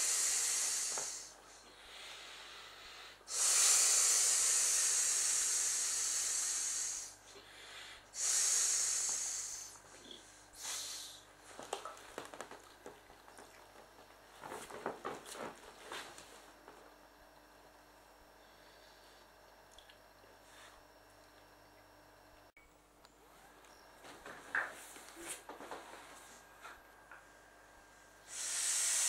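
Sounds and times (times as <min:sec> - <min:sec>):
breath blowing into valve: 0:00.0 - 0:01.4, 0:02.0 - 0:09.8, 0:10.6 - 0:11.2, 0:28.2 - 0:29.0.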